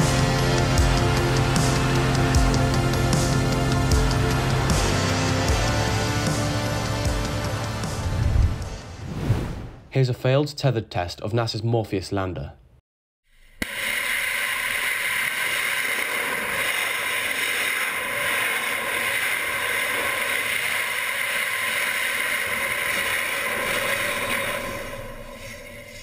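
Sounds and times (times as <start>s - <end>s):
rocket engine rushing roar: 0.0s - 9.9s, 13.6s - 26.0s.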